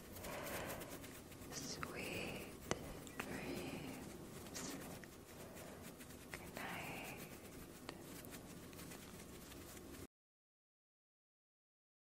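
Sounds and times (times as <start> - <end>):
soft breathy puff: 0.2 - 1.1
wet lip and tongue clicks: 2.6 - 3.5.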